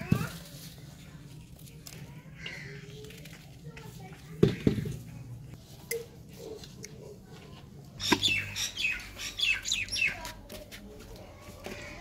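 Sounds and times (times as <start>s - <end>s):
small bird chirping: 8.0s - 10.3s.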